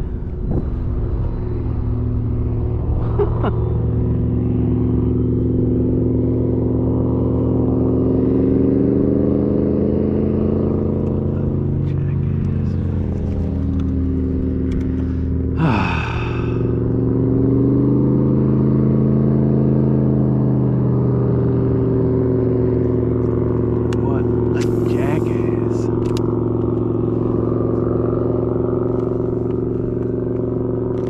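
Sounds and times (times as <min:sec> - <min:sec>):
motor humming: 0:22.8 - 0:31.0.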